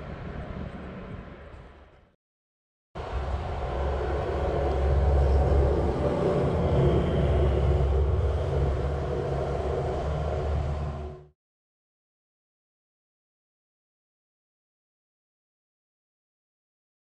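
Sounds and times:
low mechanical rumble with hum: 3.0 - 11.3.

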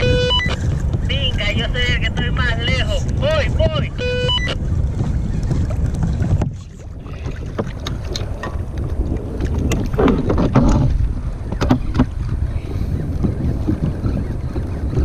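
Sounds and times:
water slapping against kayak hull: 0.0 - 15.0
wind buffeting microphone: 0.0 - 15.0
small splashes and knocks: 5.0 - 11.0.

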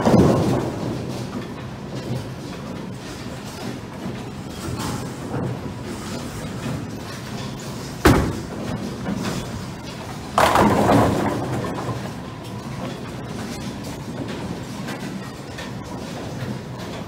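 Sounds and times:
bowling pins crashing: 0.0 - 1.3, 8.0 - 9.2, 10.2 - 12.1
bowling ball rolling on lane: 10.4 - 12.0.

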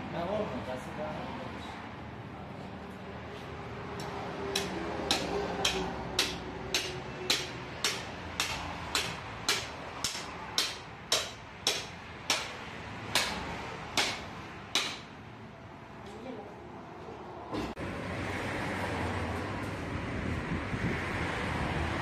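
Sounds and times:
meat cleaver chopping carcass: 4.6 - 12.6, 14.0 - 14.2.

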